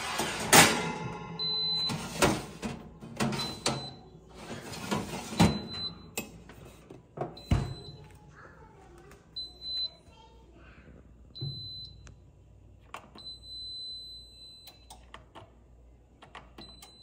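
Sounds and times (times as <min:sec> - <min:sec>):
wire racks clanking and rattling: 0:00.0 - 0:06.4.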